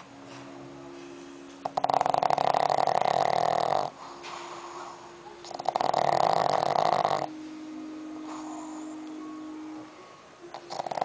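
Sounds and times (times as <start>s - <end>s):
dog snoring: 1.6s - 7.3s, 8.2s - 9.1s, 10.5s - 11.0s
quiet steady tone: 6.6s - 11.0s.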